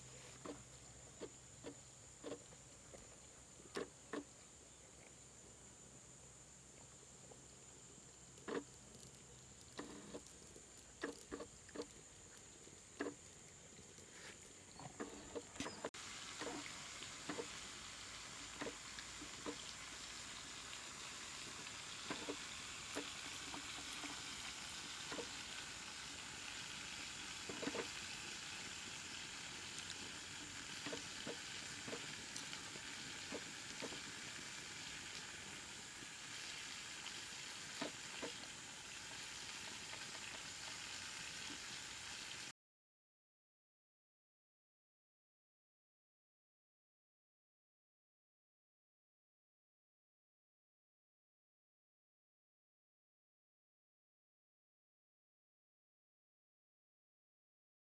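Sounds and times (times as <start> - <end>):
faint steady hiss: 0.0 - 42.5.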